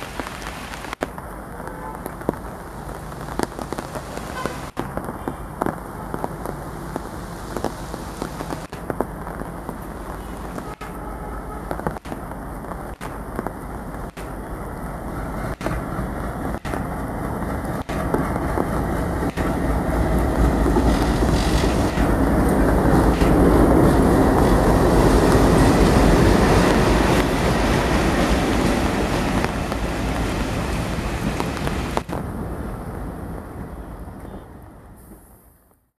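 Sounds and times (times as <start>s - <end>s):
train coaches rolling past: 0.0s - 35.6s
diesel locomotive engine rumble: 0.0s - 35.7s.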